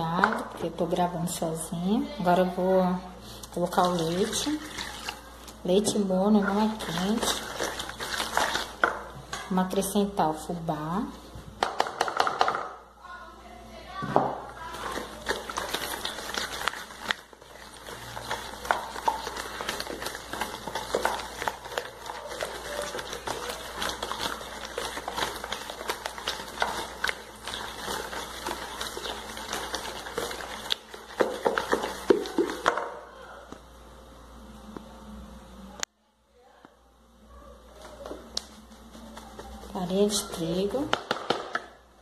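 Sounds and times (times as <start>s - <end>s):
spoon scraping plastic bowl: 5.8s - 9.0s, 14.7s - 32.9s.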